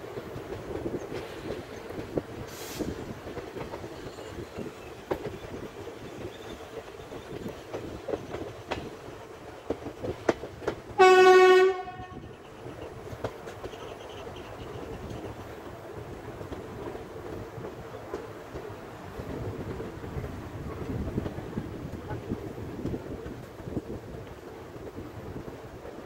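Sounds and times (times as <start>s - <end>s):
train rumbling on track: 0.0s - 26.0s
wheels clicking over rail joints: 0.0s - 26.0s
train horn blast: 11.0s - 12.4s.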